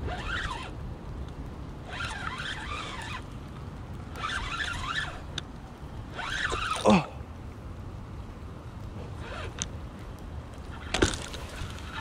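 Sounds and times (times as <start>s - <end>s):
fishing reel whirring: 0.0s - 0.8s, 1.8s - 3.3s, 4.1s - 5.3s, 6.1s - 6.9s, 10.7s - 12.0s.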